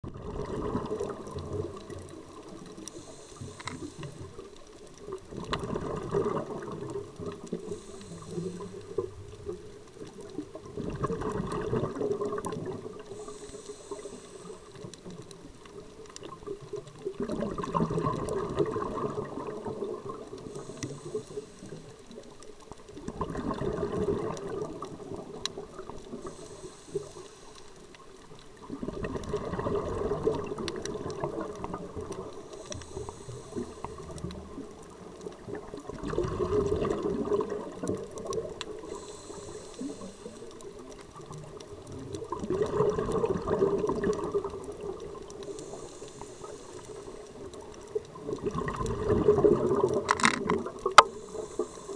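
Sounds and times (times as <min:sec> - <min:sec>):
rush of bubbles: 0:00.0 - 0:27.2, 0:28.6 - 0:51.9
regulator hiss on inhale: 0:02.4 - 0:04.6, 0:07.4 - 0:09.2, 0:12.8 - 0:15.5, 0:20.4 - 0:22.3, 0:26.1 - 0:28.2, 0:31.1 - 0:34.3, 0:38.6 - 0:41.0, 0:45.3 - 0:47.8, 0:50.9 - 0:51.9.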